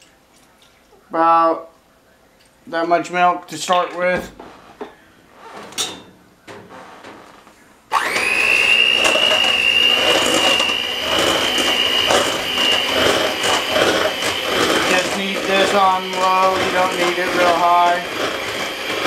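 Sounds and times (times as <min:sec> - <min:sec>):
beaters whipping potatoes in pot: 0:07.9 - 0:19.0
electric hand mixer whining: 0:07.9 - 0:19.0.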